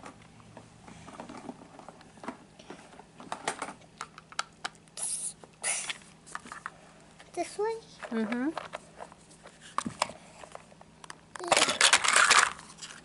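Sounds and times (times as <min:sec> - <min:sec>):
plastic parts clicking and clattering: 0:01.1 - 0:04.5, 0:09.7 - 0:13.0.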